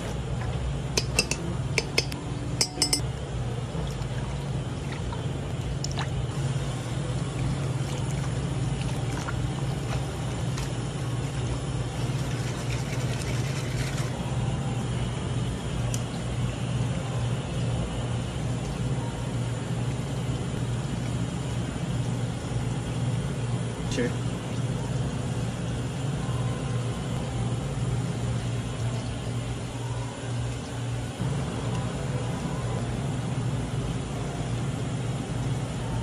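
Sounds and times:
low hum: 0.0 - 36.0
ladle clinking against pan: 1.0 - 3.0.

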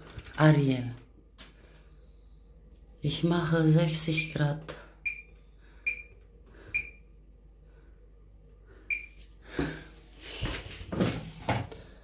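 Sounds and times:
washing machine panel beeps: 5.0 - 7.0, 8.9 - 9.2.

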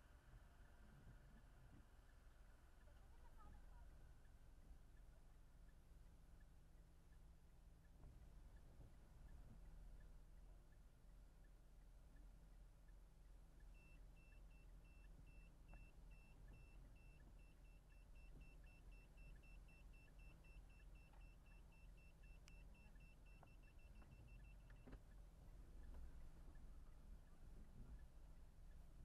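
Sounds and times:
parking sensor beeping: 13.6 - 26.8.

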